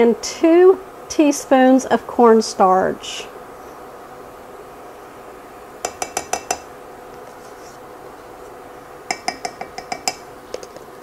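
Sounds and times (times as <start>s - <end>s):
utensil clinking against saucepan: 9.1s - 10.2s.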